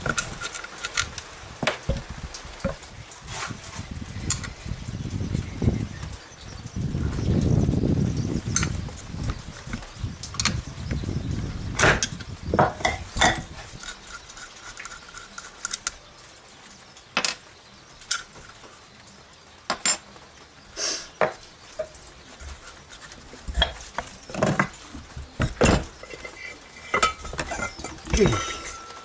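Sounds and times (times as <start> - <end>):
metal parts clinking on workbench: 25.4 - 29.0.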